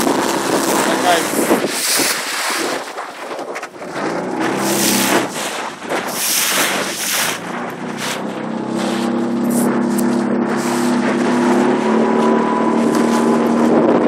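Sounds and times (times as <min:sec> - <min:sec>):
small boat motor humming: 0:00.0 - 0:14.0
wind gusting on microphone: 0:00.0 - 0:14.0.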